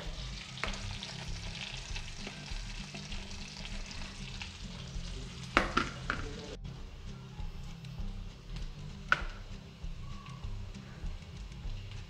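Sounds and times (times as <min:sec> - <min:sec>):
chili and garlic sizzling: 0:00.0 - 0:12.0.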